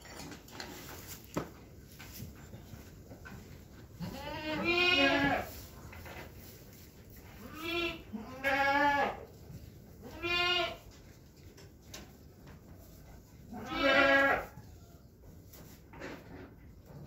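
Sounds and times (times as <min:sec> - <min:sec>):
goats bleating: 0:04.0 - 0:05.5, 0:07.4 - 0:09.2, 0:10.0 - 0:10.8, 0:13.5 - 0:14.5.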